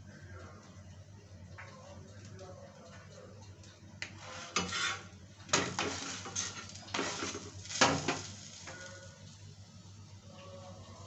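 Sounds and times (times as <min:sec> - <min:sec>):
spatula scraping iron griddle: 0:04.1 - 0:09.1.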